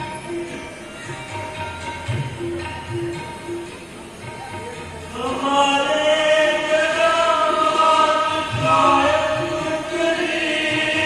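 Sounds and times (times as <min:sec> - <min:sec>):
background music: 0:00.0 - 0:11.0
devotional chanting: 0:05.1 - 0:11.0.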